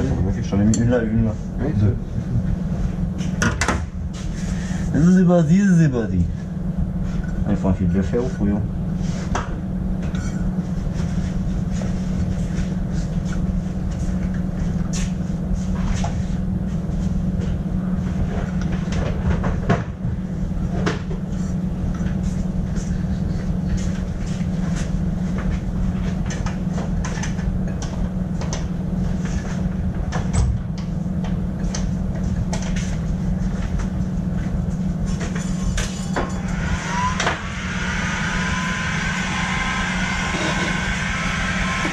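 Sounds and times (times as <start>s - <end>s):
workshop machinery hum: 0.0s - 41.9s.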